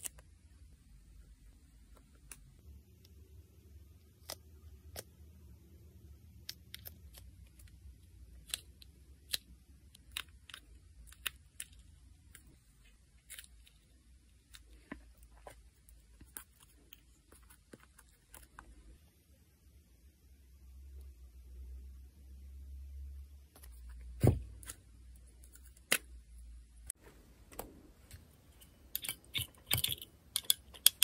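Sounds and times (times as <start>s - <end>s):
faint low hum: 0.0s - 31.0s
nail tools clicking and snipping: 28.9s - 31.0s.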